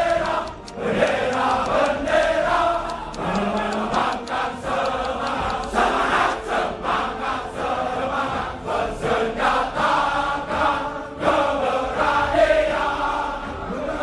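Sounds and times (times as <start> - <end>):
group of voices chanting: 0.0 - 14.0.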